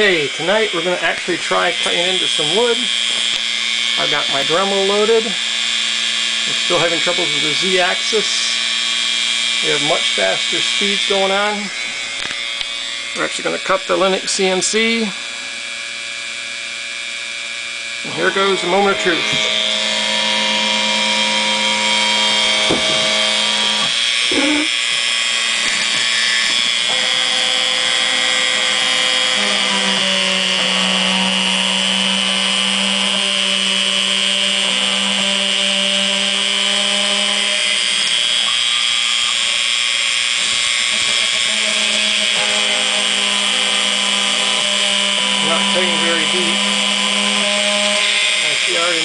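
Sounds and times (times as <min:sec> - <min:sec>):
machine motors humming: 0:00.0 - 0:49.0
rotary tool high whine: 0:00.0 - 0:49.0.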